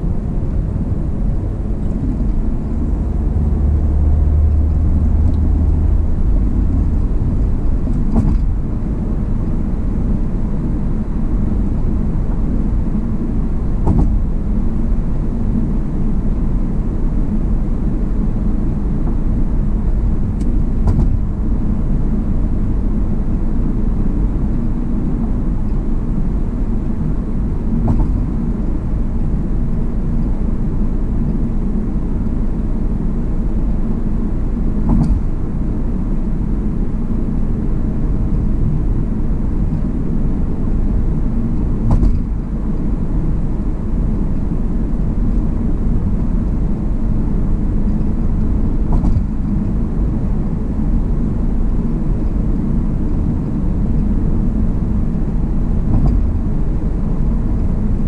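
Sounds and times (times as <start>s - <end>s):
tyre and road rumble: 0.0s - 15.8s.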